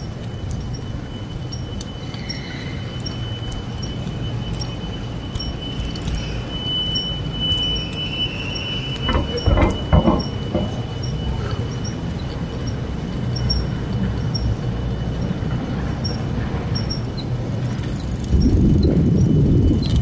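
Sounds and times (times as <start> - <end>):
bicycle tyres rumbling on concrete: 0.0 - 20.0
faint high whine: 0.0 - 20.0
clatter of bumps: 9.0 - 11.9
wind on microphone: 16.4 - 20.0.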